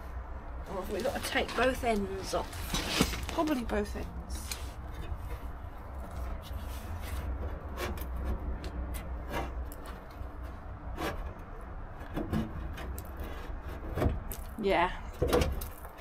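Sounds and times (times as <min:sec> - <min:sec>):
knocks and rubbing of car panel: 0:12.0 - 0:14.3.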